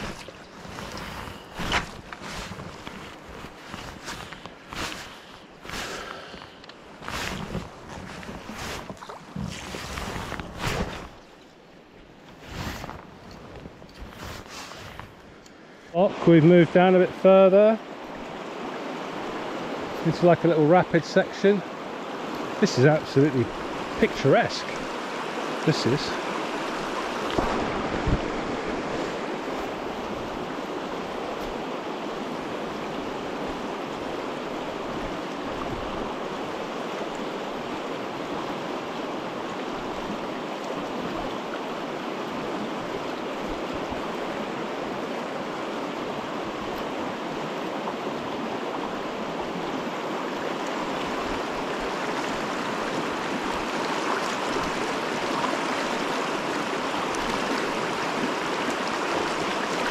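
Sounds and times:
river rushing over rocks: 0:15.9 - 0:59.9.

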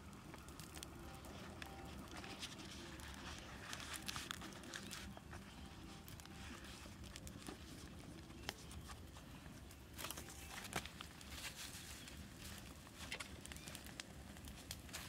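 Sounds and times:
leaf rustling and crinkling: 0:00.0 - 0:15.0
small clicks and snaps: 0:00.0 - 0:15.0.

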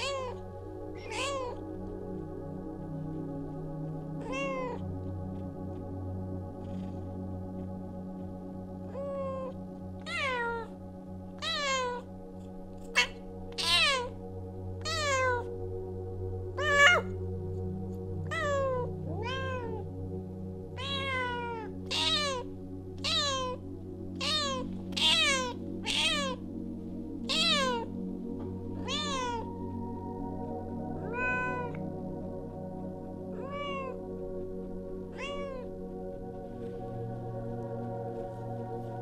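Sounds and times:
cat meowing: 0:00.0 - 0:00.4, 0:01.0 - 0:01.6, 0:04.2 - 0:04.8, 0:08.9 - 0:10.7, 0:11.4 - 0:12.1, 0:12.9 - 0:14.1, 0:14.8 - 0:15.5, 0:16.6 - 0:17.1, 0:18.3 - 0:19.8, 0:20.8 - 0:23.6, 0:24.2 - 0:26.4, 0:27.3 - 0:27.9, 0:28.8 - 0:29.5, 0:31.0 - 0:31.8, 0:33.4 - 0:34.0, 0:35.1 - 0:35.7
soft background music: 0:00.0 - 0:39.0.

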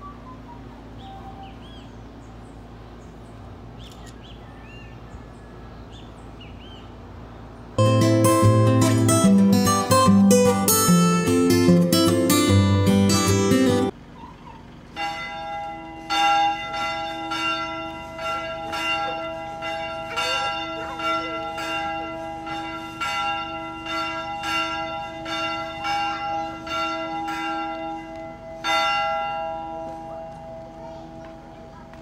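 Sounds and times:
church bells ringing: 0:07.8 - 0:14.0, 0:15.0 - 0:32.0.

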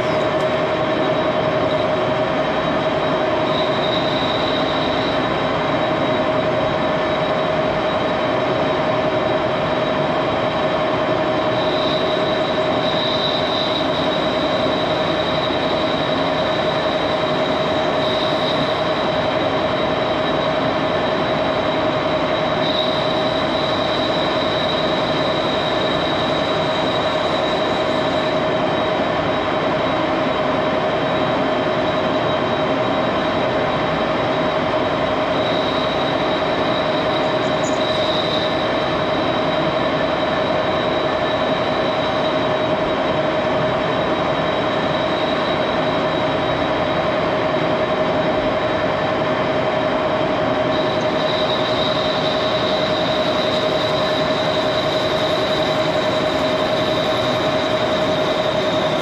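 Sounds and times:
lathe whining: 0:00.0 - 0:59.0
thin high squeal: 0:34.8 - 0:42.6.

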